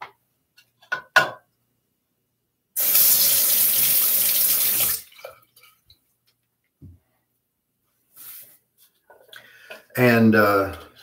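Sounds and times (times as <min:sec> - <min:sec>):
sink tap running: 0:02.8 - 0:05.0.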